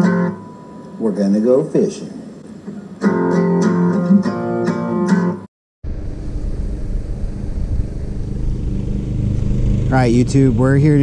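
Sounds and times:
plucked guitar music: 0:00.0 - 0:01.0, 0:02.7 - 0:05.5
steady low rumble: 0:05.8 - 0:11.0.

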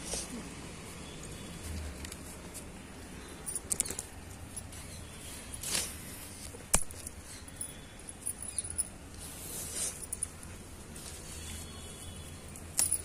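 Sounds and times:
leaves rustling: 0:04.1 - 0:07.5, 0:09.1 - 0:12.8.

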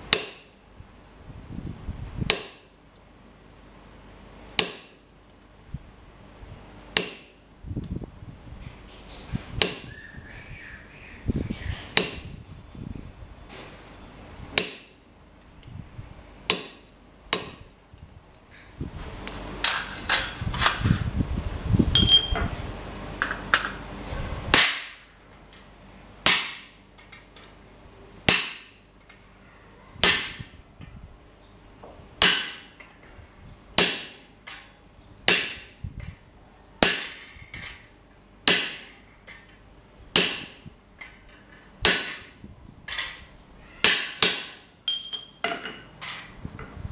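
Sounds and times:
hammer striking chisel on metal: 0:00.1 - 0:00.5, 0:02.3 - 0:02.6, 0:04.6 - 0:05.0, 0:07.0 - 0:07.4, 0:12.0 - 0:12.2, 0:14.6 - 0:15.0, 0:16.5 - 0:17.6, 0:32.2 - 0:32.8, 0:33.8 - 0:34.7, 0:35.3 - 0:35.7, 0:38.5 - 0:39.0, 0:40.2 - 0:40.6, 0:43.8 - 0:45.8
rumbling shuffling noise: 0:19.9 - 0:22.9.

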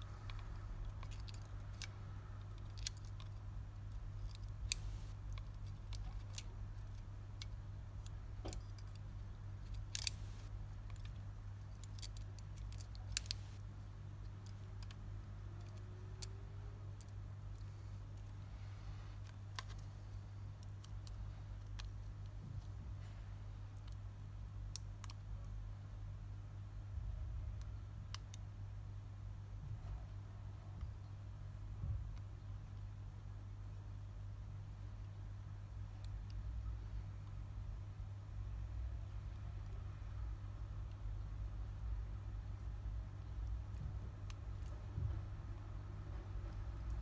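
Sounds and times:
low electrical hum: 0:00.0 - 0:47.0
tools clicking on phone parts: 0:00.2 - 0:13.6.

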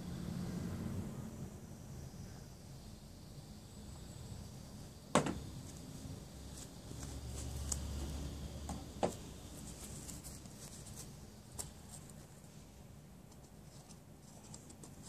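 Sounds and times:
sharp knocks: 0:05.2 - 0:05.4.

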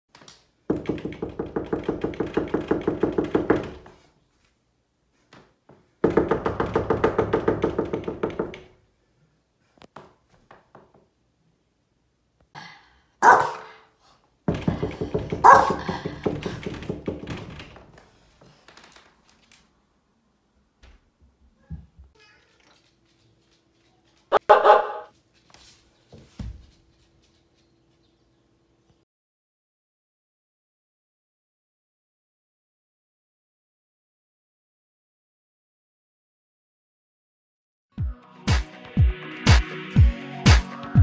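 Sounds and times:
dog pawing at wooden door: 0:00.7 - 0:04.1, 0:14.5 - 0:19.5.

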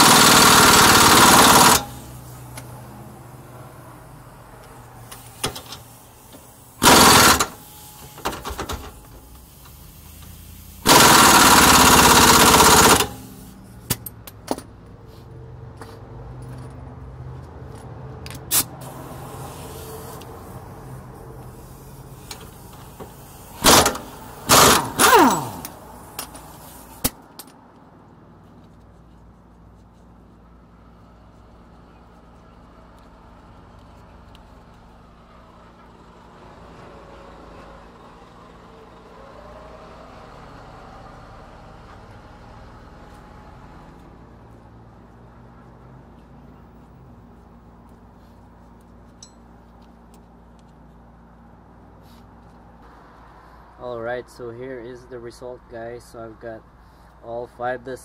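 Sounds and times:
impact wrench hammering: 0:00.0 - 0:02.1, 0:06.8 - 0:08.8, 0:10.8 - 0:14.7, 0:23.6 - 0:26.4.

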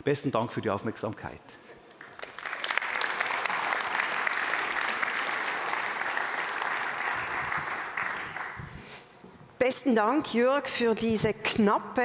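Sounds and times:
audience applauding: 0:01.9 - 0:08.9.

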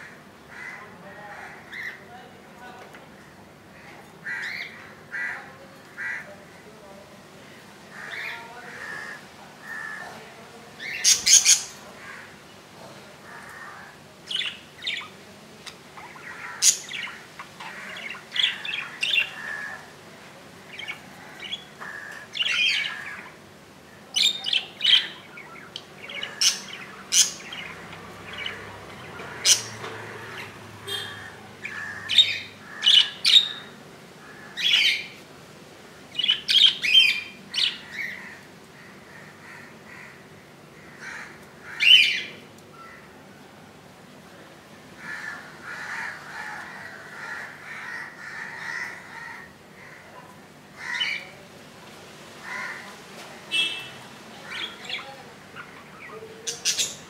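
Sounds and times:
budgerigars chirping and squawking: 0:10.8 - 0:11.8, 0:14.3 - 0:19.8, 0:20.7 - 0:23.4, 0:24.2 - 0:33.8, 0:36.1 - 0:38.4, 0:41.0 - 0:42.3, 0:53.6 - 0:57.0.

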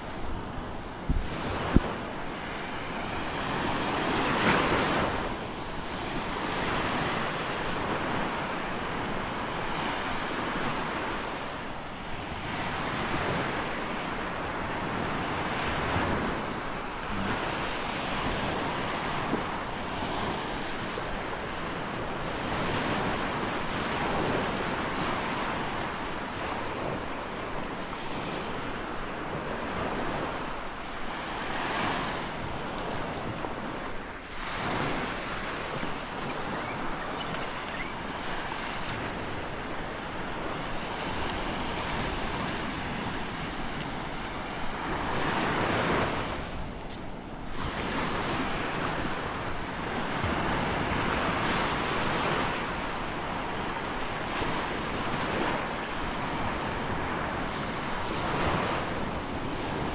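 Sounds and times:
waves breaking on beach: 0:00.0 - 0:59.9
wind on microphone: 0:00.0 - 0:59.9.

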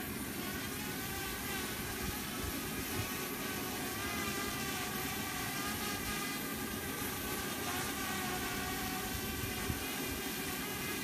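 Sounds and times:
drone propellers whining: 0:00.0 - 0:11.0
wind rumbling on microphone: 0:00.9 - 0:04.2, 0:05.5 - 0:11.0.

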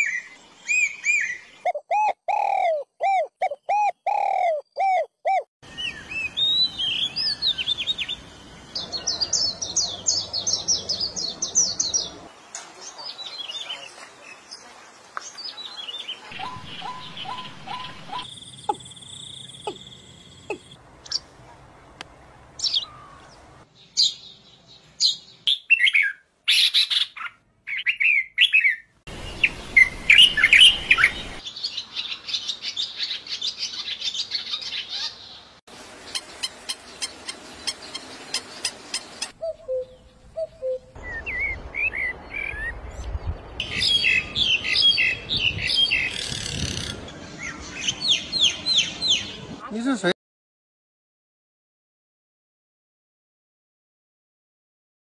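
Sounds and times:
birds chirping and calling: 0:00.0 - 0:14.6, 0:15.2 - 0:21.4, 0:22.6 - 0:50.0
faint outdoor background noise: 0:00.0 - 0:50.2.

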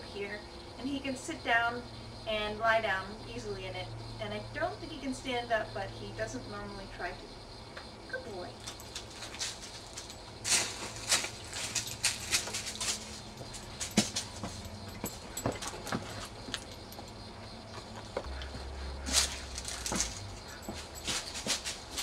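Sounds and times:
dog rustling dry leaves: 0:08.6 - 0:14.7, 0:19.0 - 0:22.0.

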